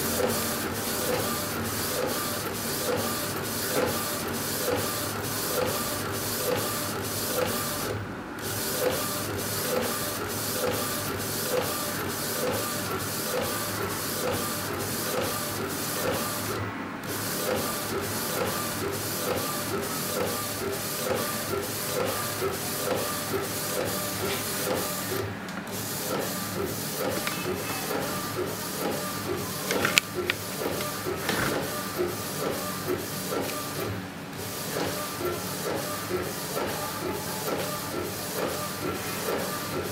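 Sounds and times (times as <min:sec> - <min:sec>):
printer carriage shuttling: 0:28.9 - 0:31.8.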